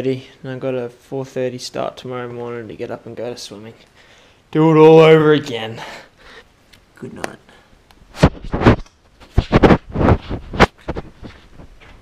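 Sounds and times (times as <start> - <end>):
hands rubbing and knocking camera: 8.2 - 12.0.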